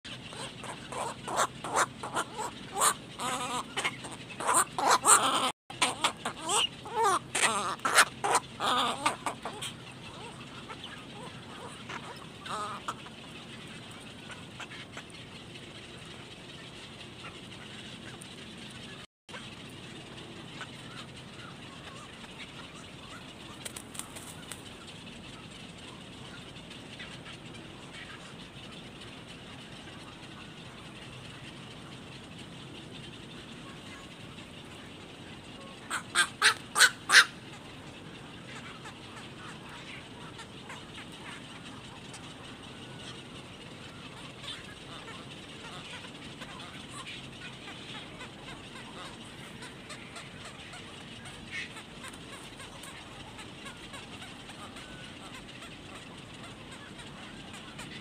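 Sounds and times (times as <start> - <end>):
herons giving harsh calls: 0.3 - 13.1, 35.9 - 37.5.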